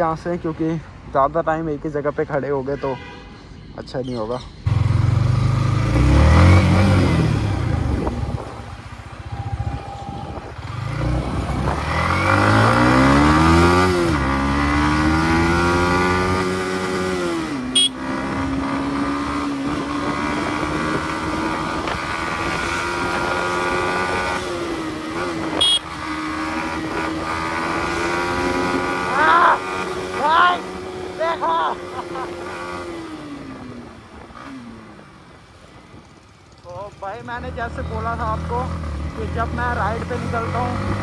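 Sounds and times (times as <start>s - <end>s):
motorcycle engine accelerating: 4.6s - 35.3s, 37.4s - 41.0s.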